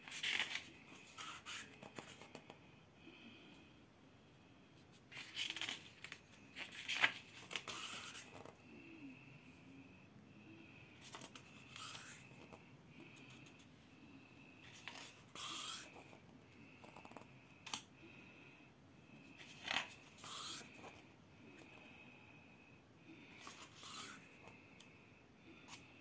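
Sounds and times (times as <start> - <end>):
paper pages rustling: 0.0 - 2.4, 5.1 - 8.5, 14.7 - 15.2.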